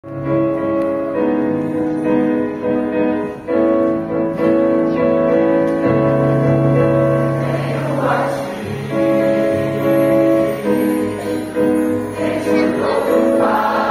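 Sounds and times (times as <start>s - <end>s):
slow piano chords: 0.0s - 13.9s.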